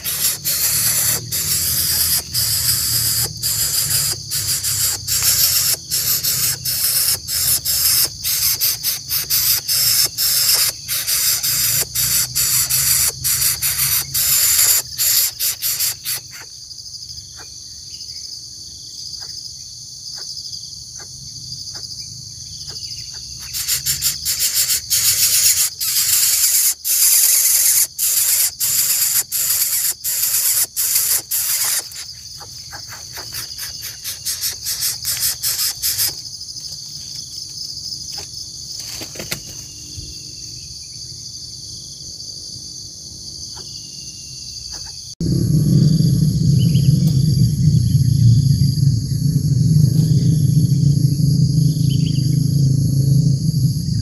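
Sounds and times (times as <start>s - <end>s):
insect chorus chirring: 0.0s - 54.0s
loud low rumble: 45.2s - 54.0s.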